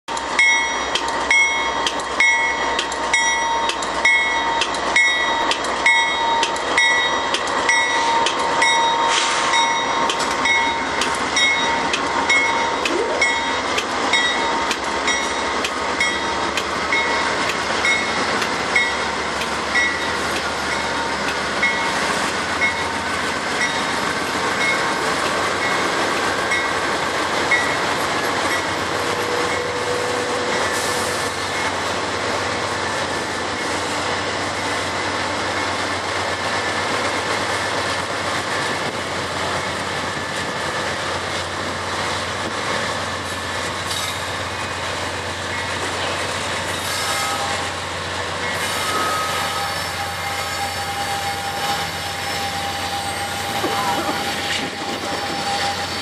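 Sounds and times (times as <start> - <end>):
diesel locomotives running: 0.1 - 56.0
train rumbling on rails: 0.1 - 56.0.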